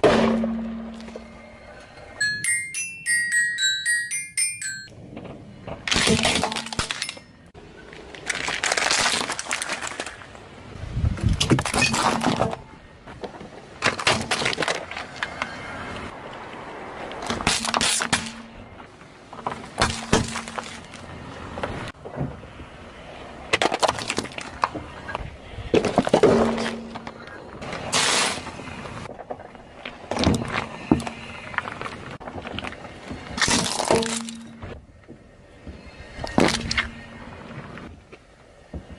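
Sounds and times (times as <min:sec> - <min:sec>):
car tyre crushing plastic: 0:05.8 - 0:07.2, 0:08.0 - 0:10.5, 0:11.4 - 0:15.5, 0:17.2 - 0:18.5, 0:19.3 - 0:21.7, 0:23.5 - 0:24.8, 0:30.0 - 0:34.7, 0:36.2 - 0:37.0.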